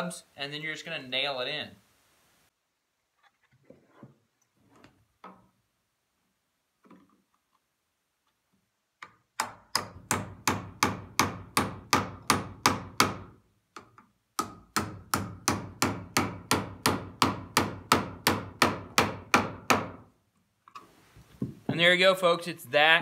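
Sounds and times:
hammer driving nails into wood: 0:09.0 - 0:20.1.

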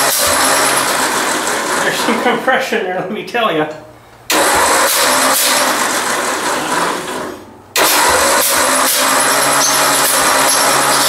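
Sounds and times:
tractor engine cranking: 0:00.0 - 0:02.2, 0:04.3 - 0:11.0.

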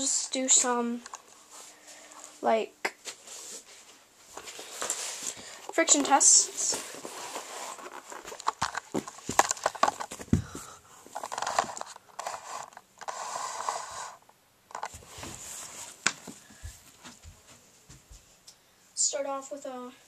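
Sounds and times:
rustling: 0:03.0 - 0:18.4.

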